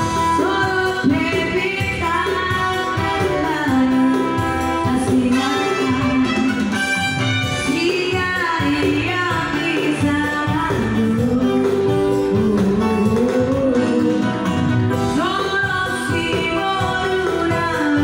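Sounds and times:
amplified backing music with guitar: 0.0s - 18.0s
woman singing into a microphone: 0.0s - 18.0s.

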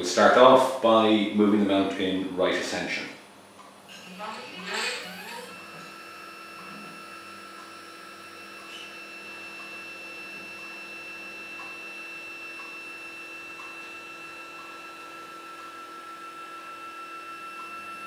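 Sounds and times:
stepper motor whine: 3.9s - 18.0s.

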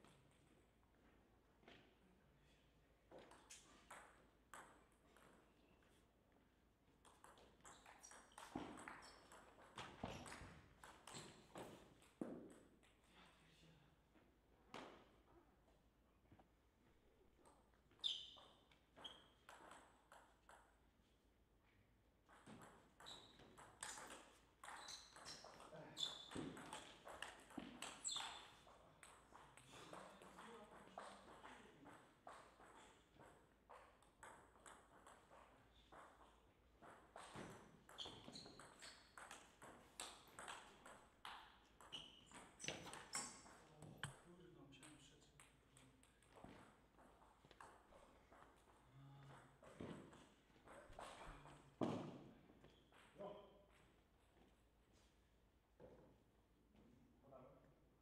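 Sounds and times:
ping pong ball hitting bats: 3.1s - 5.5s, 7.0s - 12.9s, 17.4s - 20.9s, 22.2s - 44.2s, 44.8s - 53.1s
ball bouncing on table: 7.0s - 12.7s, 17.4s - 20.8s, 22.2s - 44.2s, 49.3s - 53.1s.

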